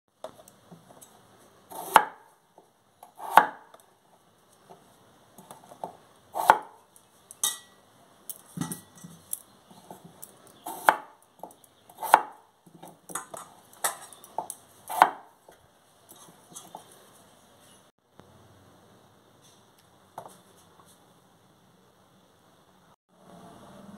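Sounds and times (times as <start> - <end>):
knife chopping on wooden board: 1.7 - 2.3, 3.0 - 3.8, 5.4 - 6.8, 9.8 - 15.3.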